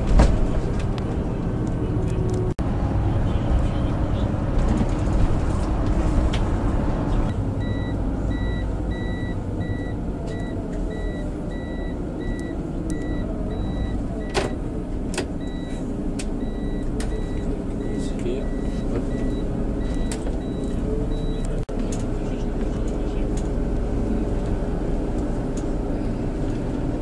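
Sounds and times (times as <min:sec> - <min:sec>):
bus engine rumbling: 0:00.0 - 0:27.0
electronic warning beeps: 0:07.6 - 0:14.5, 0:16.4 - 0:21.6.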